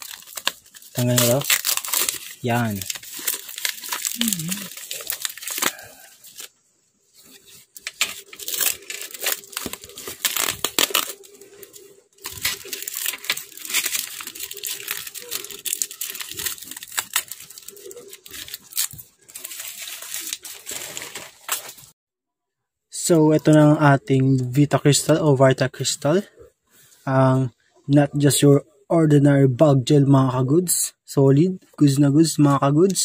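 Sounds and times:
plastic wrapping crinkling: 0.0s - 22.0s.

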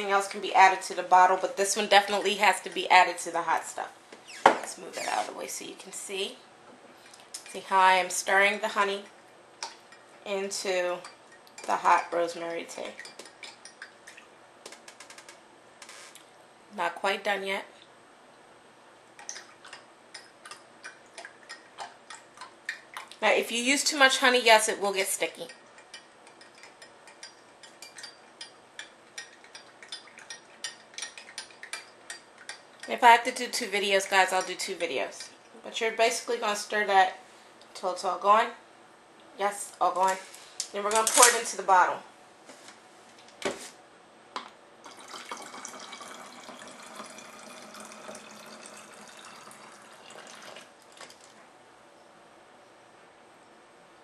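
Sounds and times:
liquid trickling into bottle: 44.9s - 51.3s.

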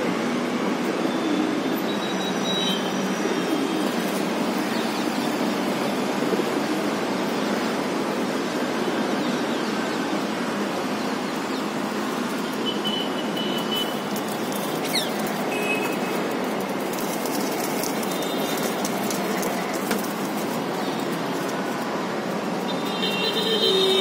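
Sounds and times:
city traffic hum: 0.0s - 24.0s
pigeon wings flapping: 12.2s - 23.7s
high whistles: 14.8s - 15.8s.

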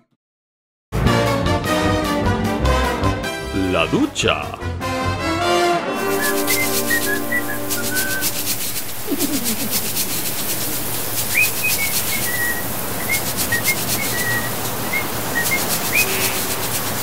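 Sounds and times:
person whistling a tune: 6.0s - 8.4s, 11.3s - 16.3s
water spraying: 6.0s - 17.0s.

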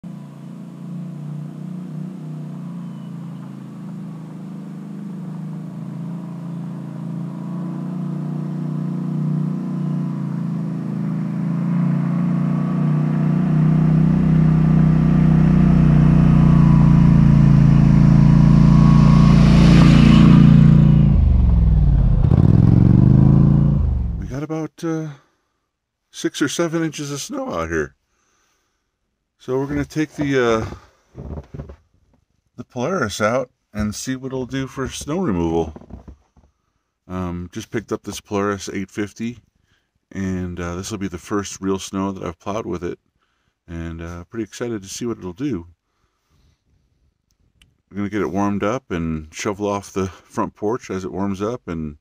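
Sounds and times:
quad engine passing by: 0.0s - 24.3s.

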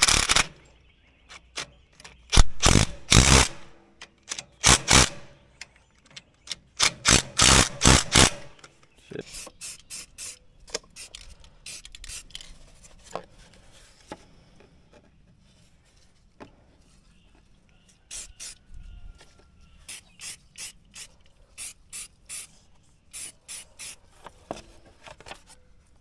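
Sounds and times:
spray paint can hissing: 9.3s - 12.4s, 18.1s - 18.6s, 19.8s - 24.0s.

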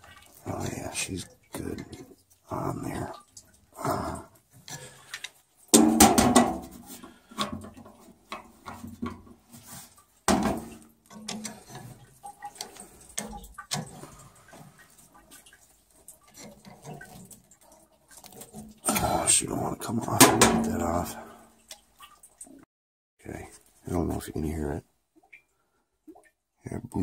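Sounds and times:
metal knocks: 5.7s - 6.8s, 10.3s - 11.5s.

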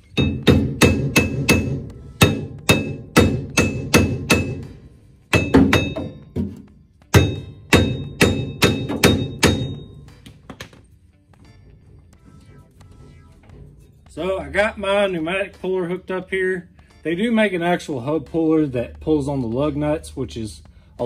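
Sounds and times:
hammer striking ringing metal: 0.0s - 6.5s, 7.1s - 10.1s.

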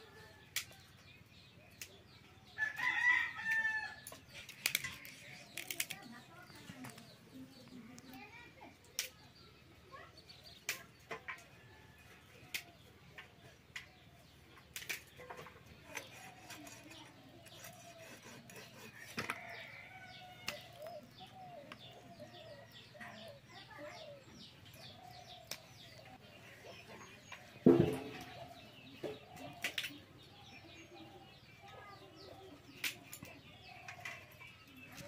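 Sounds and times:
birds chirping: 0.0s - 35.0s
meat being cut on a blade: 15.9s - 19.4s.

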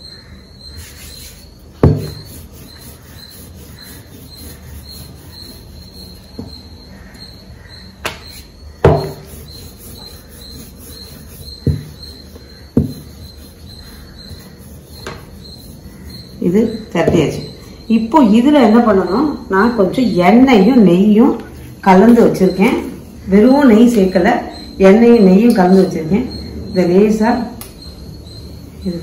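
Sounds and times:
rolling pin rolling dough: 0.7s - 6.8s, 8.1s - 17.5s
knocks on wooden table: 1.8s - 2.2s, 8.8s - 9.2s, 12.8s - 13.0s.

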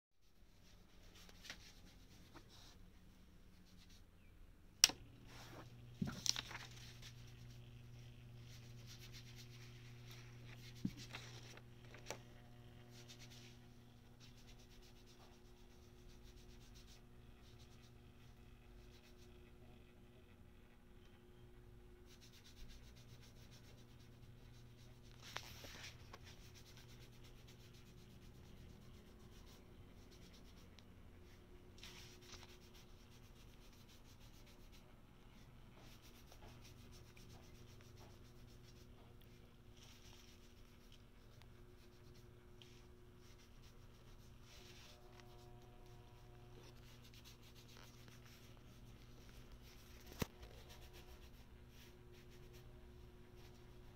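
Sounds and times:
paper rubbing: 5.3s - 13.6s, 39.8s - 52.6s.

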